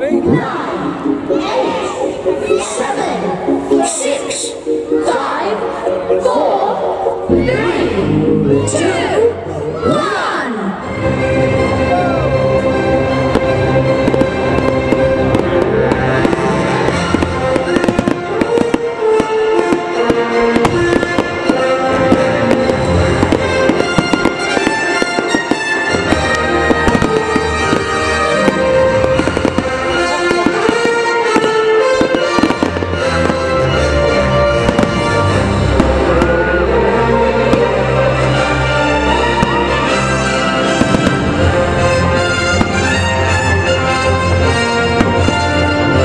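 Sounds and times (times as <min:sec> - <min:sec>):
loud music: 0:00.0 - 0:46.0
fireworks bangs and crackles: 0:12.6 - 0:46.0.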